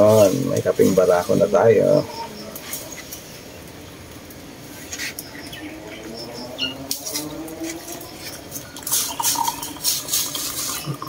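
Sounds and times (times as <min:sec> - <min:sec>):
liquid splashing: 0:07.0 - 0:11.0
coffee trickling into a mug: 0:08.0 - 0:11.0.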